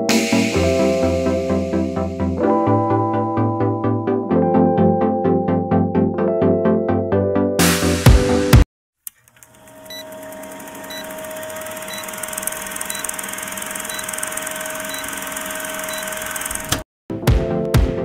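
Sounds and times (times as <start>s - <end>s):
film projector running: 9.1s - 16.8s.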